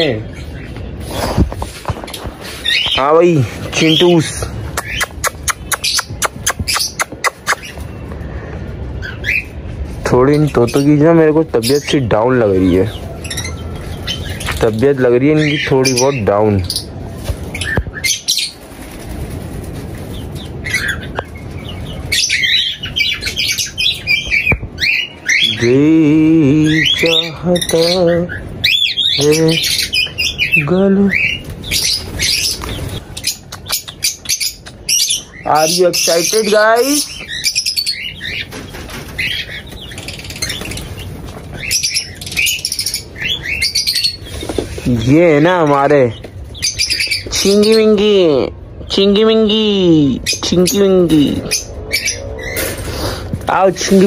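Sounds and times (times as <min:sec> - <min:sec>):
cockatiels chirping and squawking: 0:00.0 - 0:08.0, 0:09.0 - 0:09.6, 0:10.3 - 0:25.6, 0:26.7 - 0:48.2, 0:50.2 - 0:54.0
wings flapping: 0:17.2 - 0:22.2, 0:31.4 - 0:34.8, 0:38.4 - 0:41.8.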